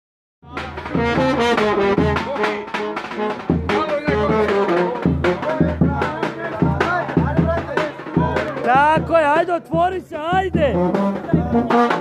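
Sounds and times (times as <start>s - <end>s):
low pulsing beat: 0.4s - 12.0s
brass band playing: 0.5s - 9.7s, 10.4s - 12.0s.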